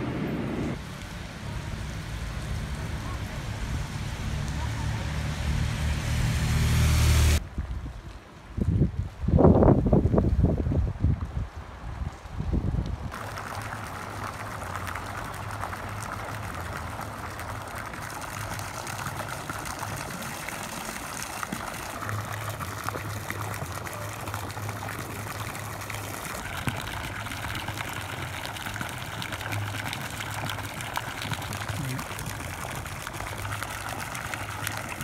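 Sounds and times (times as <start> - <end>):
low hum: 0.0 - 7.5
fountain water splashing: 0.0 - 35.0.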